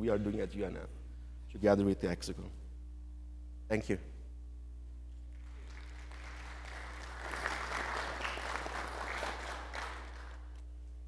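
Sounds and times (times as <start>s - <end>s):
audience applauding: 5.4s - 10.6s.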